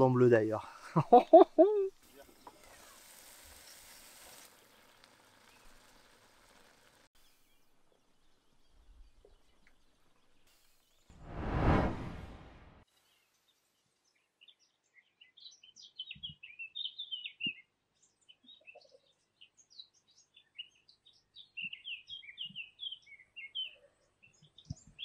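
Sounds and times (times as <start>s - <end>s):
songbirds chirping: 4.5s - 11.1s, 12.9s - 25.0s.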